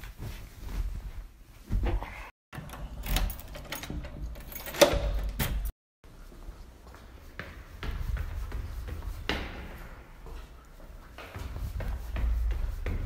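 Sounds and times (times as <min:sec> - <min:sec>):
door handling thumps and rattles: 0:02.6 - 0:05.7.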